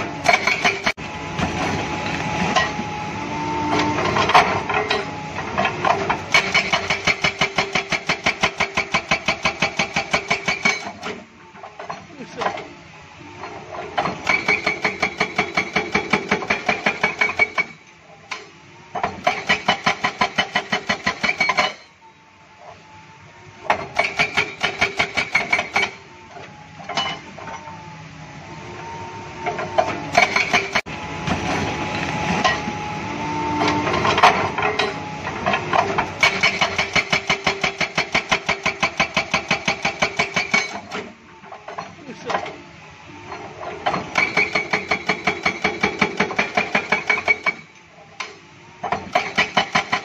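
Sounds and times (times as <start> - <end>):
excavator engine and hydraulics: 0.0 - 50.0
hydraulic breaker hammering rock: 0.2 - 2.9, 3.6 - 11.2, 13.9 - 21.9, 23.7 - 26.0, 29.5 - 32.8, 33.5 - 41.1, 43.3 - 50.0.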